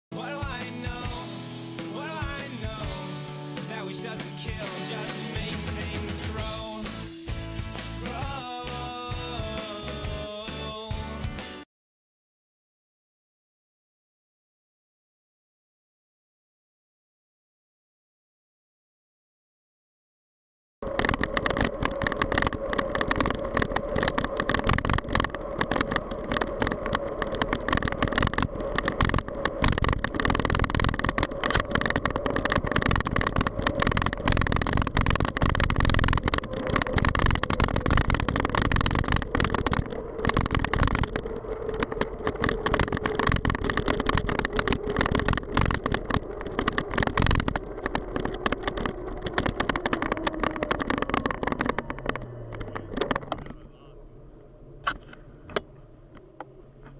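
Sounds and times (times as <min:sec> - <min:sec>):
wind buffeting microphone: 0:20.8 - 0:56.8
road noise hum: 0:20.8 - 0:56.9.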